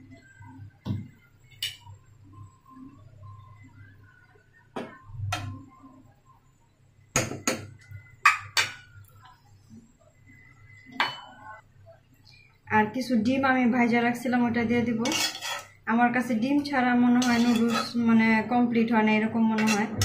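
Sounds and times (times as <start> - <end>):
faint low hum: 0.0 - 20.0
metal utensils clinking against pot: 15.0 - 15.8, 17.2 - 18.0, 19.6 - 20.0
stirring noodles in saucepan: 15.0 - 15.8, 17.2 - 18.0.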